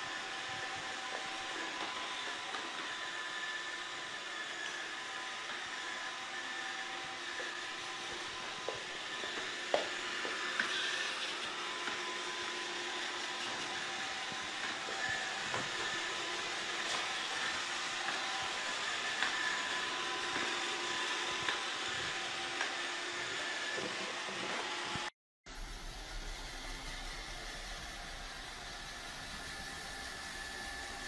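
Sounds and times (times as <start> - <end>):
robot vacuum whirring: 0.0 - 31.0.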